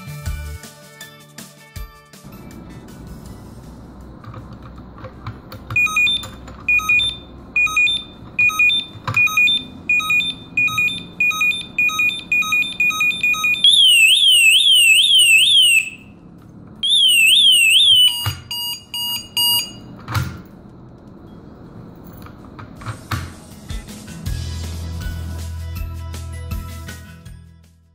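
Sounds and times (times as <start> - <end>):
alarm siren warbling: 5.8 - 16.2, 16.8 - 19.6.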